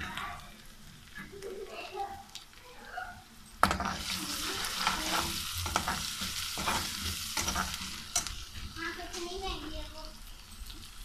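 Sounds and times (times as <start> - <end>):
onions sizzling in oil: 0.0 - 11.0
metal spatula scraping a pot: 3.6 - 8.7.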